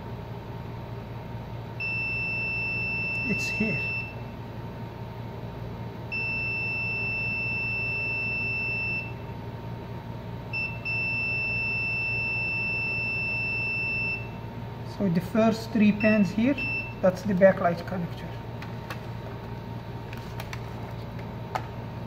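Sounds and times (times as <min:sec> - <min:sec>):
multimeter beeping high tone: 0:01.8 - 0:04.3, 0:06.1 - 0:09.2, 0:10.5 - 0:14.4, 0:15.9 - 0:17.1.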